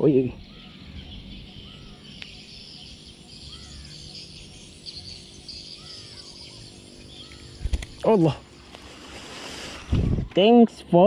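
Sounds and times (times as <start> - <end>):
bird chirping: 0.0 - 9.0
high insect chirring: 0.0 - 9.9.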